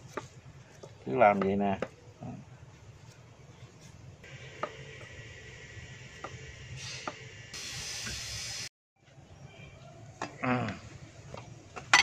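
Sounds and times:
steady hiss: 4.2 - 8.7.

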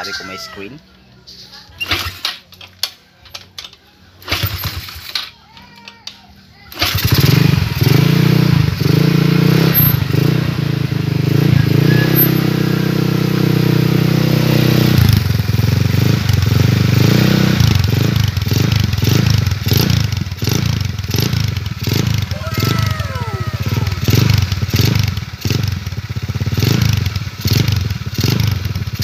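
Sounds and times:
scooter engine running: 6.7 - 29.0.

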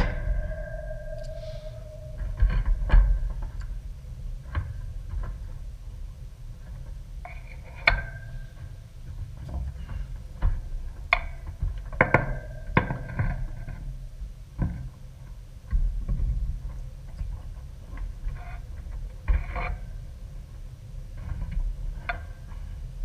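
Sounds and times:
steady low rumble: 0.0 - 6.6, 11.7 - 14.5.

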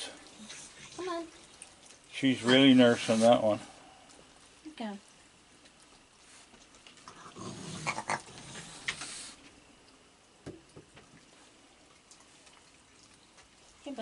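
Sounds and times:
raccoon growling: 7.0 - 9.3.

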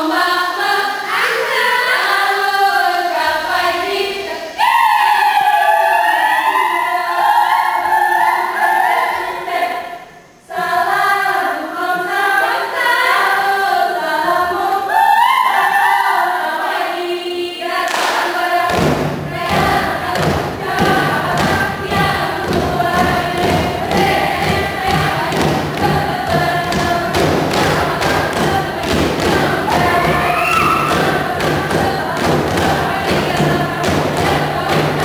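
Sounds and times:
group singing in chorus: 0.0 - 35.0
hand claps and body slaps: 17.9 - 21.6.

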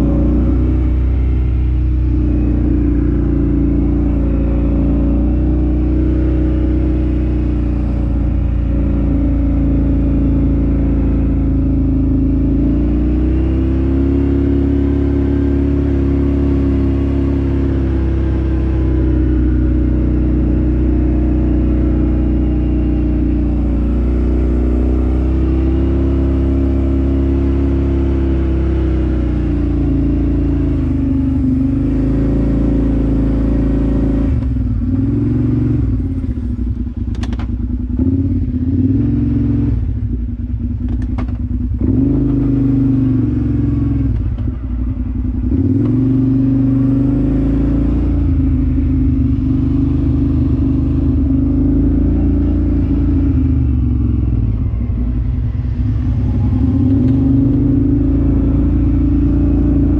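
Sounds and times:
off-road vehicle engine revving: 0.0 - 59.9
steady low noise: 48.2 - 59.9.

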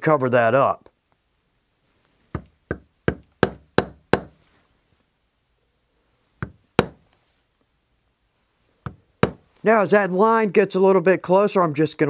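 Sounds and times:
maul striking leather stamping tool: 2.3 - 4.4, 6.4 - 7.0, 8.8 - 9.4.

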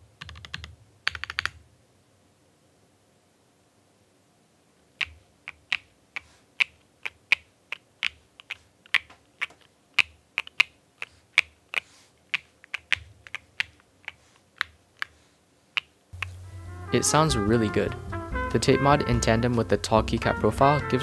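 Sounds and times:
mechanical keyboard typing: 0.2 - 1.6, 5.0 - 15.1.

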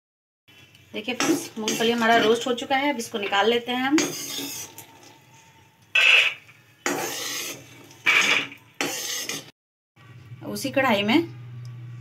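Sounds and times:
metal spoon scraping a pan: 1.2 - 9.5.

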